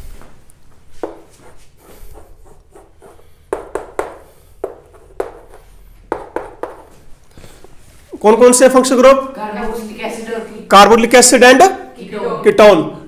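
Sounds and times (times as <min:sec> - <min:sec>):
writing tool tapping on board: 0:01.0 - 0:07.0.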